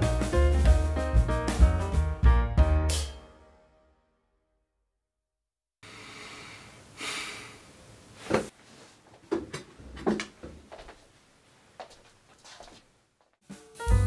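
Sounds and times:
person exhaling: 0:05.8 - 0:07.7
soft knocks and rustles: 0:08.2 - 0:11.1.

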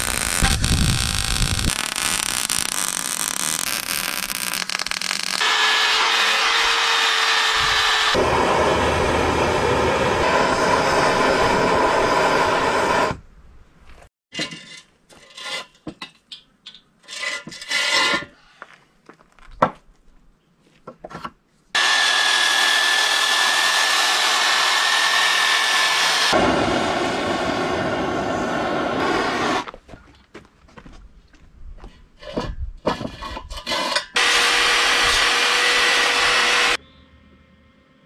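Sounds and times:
electric power tool whining: 0:00.0 - 0:13.2, 0:21.8 - 0:29.6, 0:34.2 - 0:36.8.

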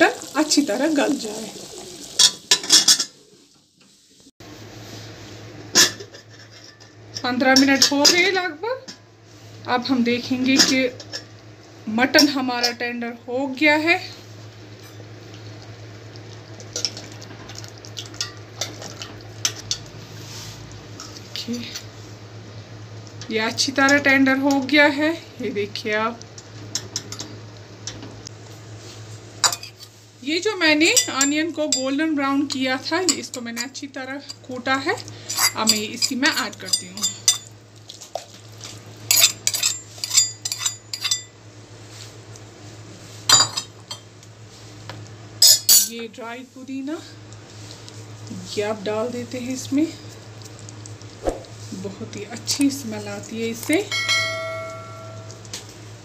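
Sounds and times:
steel spoon clinking on bowl: 0:35.4 - 0:37.5, 0:39.1 - 0:41.3, 0:53.8 - 0:55.5.

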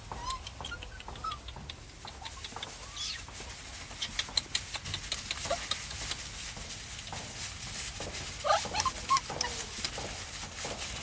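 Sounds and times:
small animals squeaking: 0:00.0 - 0:03.3, 0:08.4 - 0:09.8.

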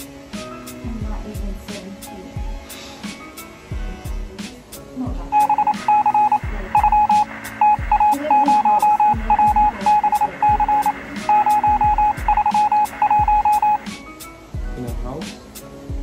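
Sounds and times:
kick drum and hi-hat beat: 0:00.0 - 0:01.6, 0:03.7 - 0:04.5, 0:05.2 - 0:14.0, 0:14.6 - 0:16.0
rapid electronic beeps: 0:05.4 - 0:13.9.

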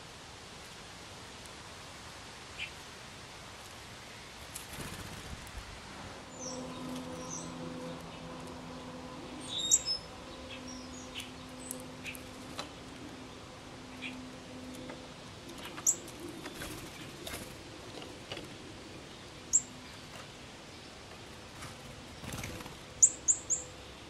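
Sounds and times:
low steady hum: 0:00.0 - 0:24.0
steady outdoor hiss: 0:00.0 - 0:24.0
high bird chirps: 0:09.4 - 0:12.2.

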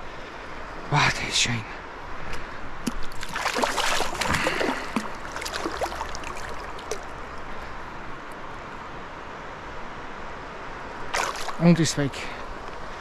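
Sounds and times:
water splashing and trickling: 0:02.8 - 0:07.9, 0:11.0 - 0:12.5
river rushing: 0:03.0 - 0:13.0.

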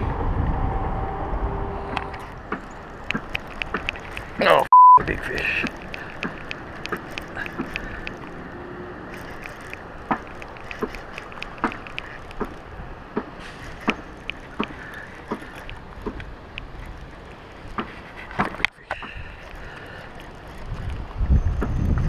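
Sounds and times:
fishing reel cranking: 0:09.1 - 0:12.6.

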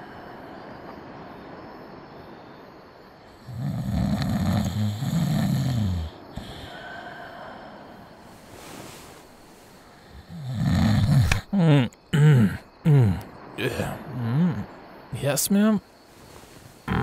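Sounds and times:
faint steady hiss: 0:00.0 - 0:17.0
man snoring: 0:03.5 - 0:06.8, 0:10.0 - 0:13.2.

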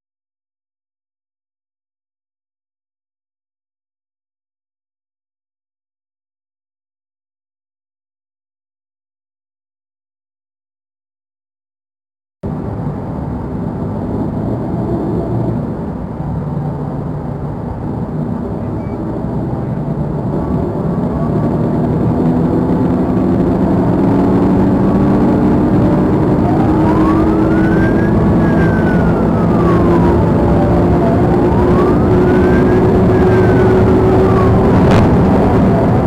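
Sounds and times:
car engine accelerating: 0:12.4 - 0:36.0
road noise: 0:12.4 - 0:36.0
siren wailing: 0:18.4 - 0:36.0.

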